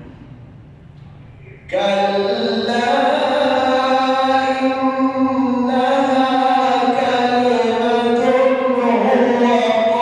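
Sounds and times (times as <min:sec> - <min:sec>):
man chanting melodically: 0:01.4 - 0:10.0.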